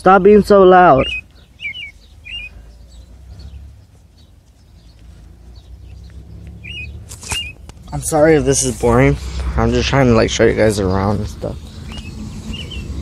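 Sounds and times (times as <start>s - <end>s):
high bird chirps: 0.3s - 8.0s, 10.9s - 13.0s
low rumble: 7.8s - 13.0s.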